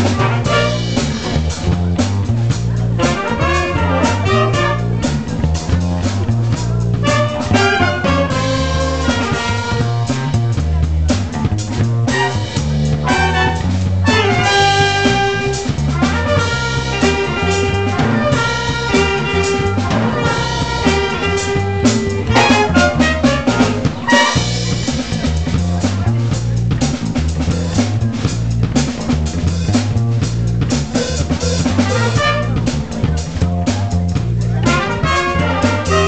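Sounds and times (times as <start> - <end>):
trumpets and saxophones: 0.0 - 1.5, 2.7 - 5.4, 6.9 - 10.5, 12.0 - 24.9, 31.6 - 33.0, 34.5 - 36.0
bass line: 0.0 - 36.0
drum kit: 0.0 - 36.0.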